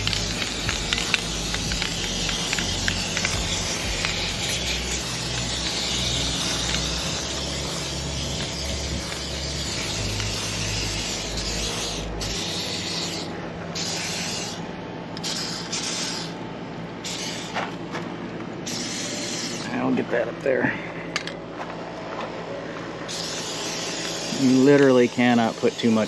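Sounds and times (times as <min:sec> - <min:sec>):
aerosol spray hissing: 0:00.0 - 0:14.6, 0:17.1 - 0:17.6, 0:18.7 - 0:19.7, 0:23.2 - 0:26.0.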